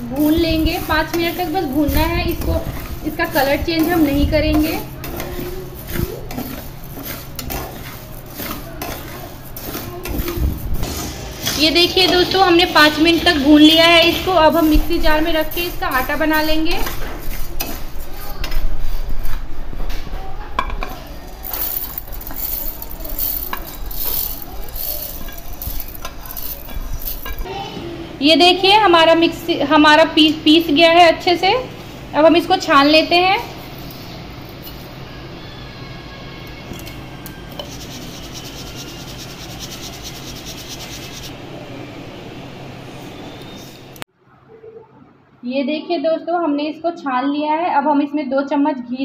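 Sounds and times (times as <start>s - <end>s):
pearls scraped in a steel pan: 0.0s - 18.1s, 21.3s - 27.5s, 37.5s - 41.3s
flour rubbed through a sieve: 0.0s - 19.0s, 21.3s - 27.4s, 37.5s - 41.3s
pearls rattling into steel jar: 0.2s - 17.7s, 21.2s - 27.5s, 33.8s - 34.9s
metal clinking on metal: 21.4s - 27.5s.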